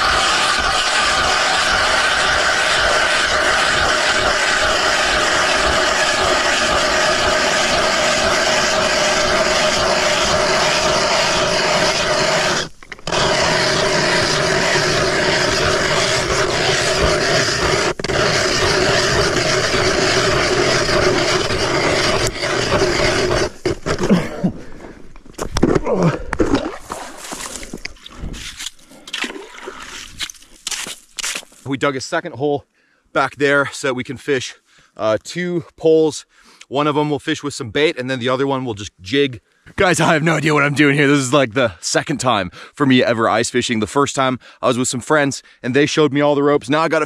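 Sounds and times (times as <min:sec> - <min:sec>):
ice auger grinding through ice: 0:00.0 - 0:24.3.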